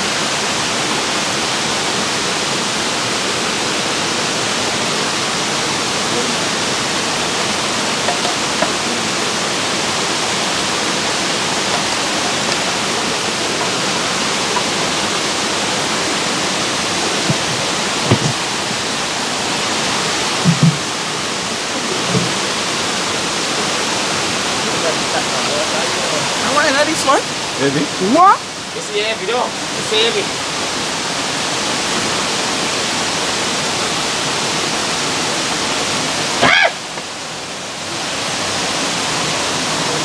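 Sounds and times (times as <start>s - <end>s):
flowing water rushing: 0.0s - 40.0s
low thumps: 17.1s - 18.9s, 20.4s - 21.0s.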